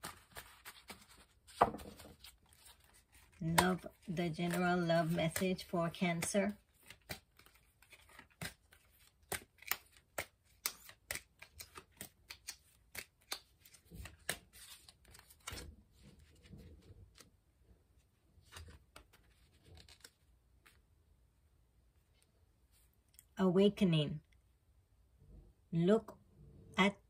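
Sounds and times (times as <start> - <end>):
cards being shuffled: 0.0 - 17.3, 18.4 - 20.8
card laid down: 1.5 - 2.2.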